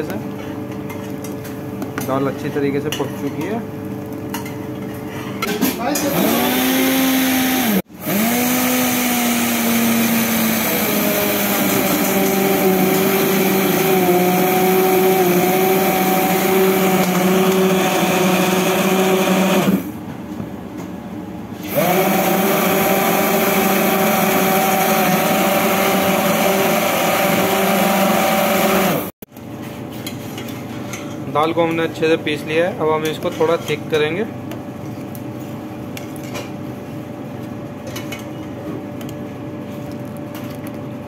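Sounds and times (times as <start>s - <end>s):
stick blender motor running: 6.0s - 19.9s, 21.7s - 29.1s.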